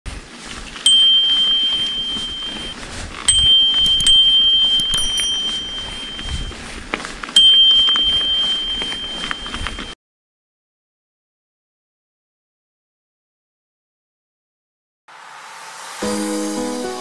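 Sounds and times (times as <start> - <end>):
bicycle bell pings: 0.9 - 6.6, 7.4 - 10.0
bell striker clicks: 3.3 - 6.3, 7.4 - 9.9.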